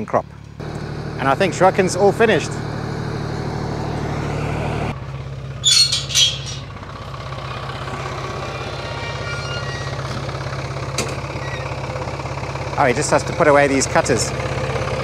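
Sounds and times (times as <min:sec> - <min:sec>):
tractor engine idling: 0:00.0 - 0:15.0
high hissing squeals: 0:05.6 - 0:06.8, 0:07.4 - 0:12.0.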